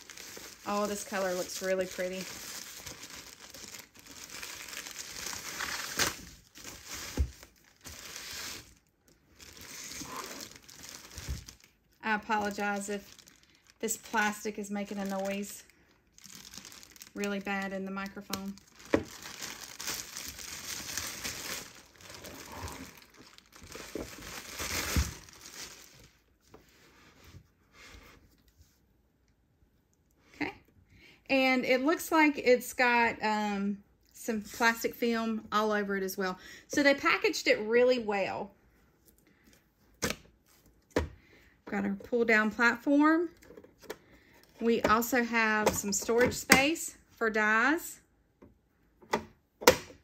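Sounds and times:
plastic packaging crinkling: 0.0s - 26.3s.

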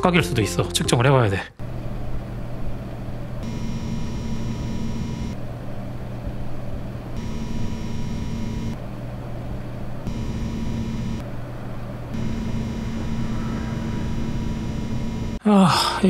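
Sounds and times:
water pump high whine: 1.6s - 8.9s, 10.0s - 15.4s
graphics card fan hum: 1.6s - 15.4s.

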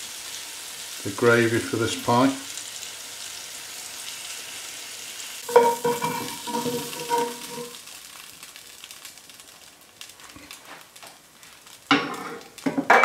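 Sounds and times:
meat sizzling in oil: 0.0s - 13.0s
metal spoon clanging on pan: 5.5s - 7.8s.

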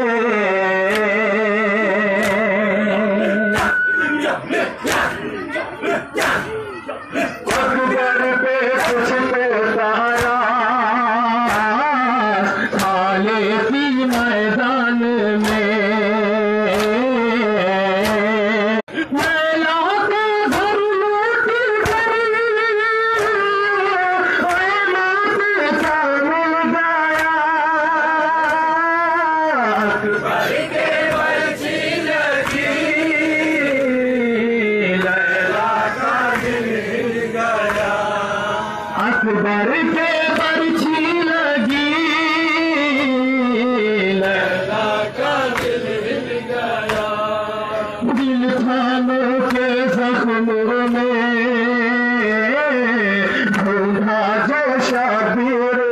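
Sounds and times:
man chanting a lament: 0.0s - 55.9s
chest-striking beats: 2.2s - 9.1s.

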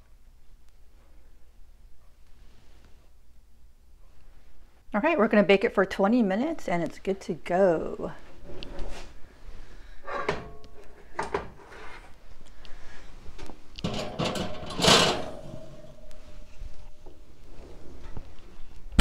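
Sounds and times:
metal oven rack clattering: 10.1s - 11.6s, 13.8s - 17.1s
metallic clank: 13.8s - 17.2s.

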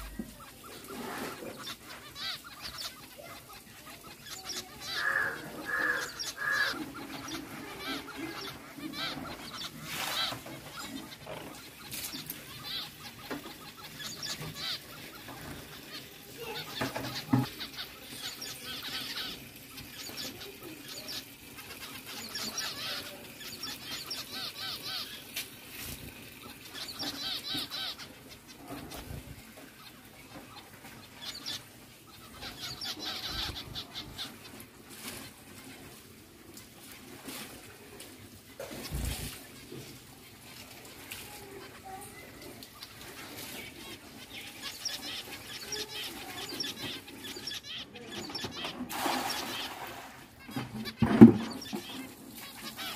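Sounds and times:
finches chirping: 0.0s - 25.4s, 26.4s - 34.5s, 42.8s - 49.7s.

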